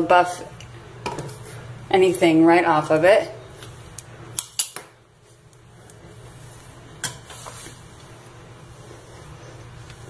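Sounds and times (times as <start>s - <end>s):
damp cloth rubbing a sink: 6.0s - 10.0s.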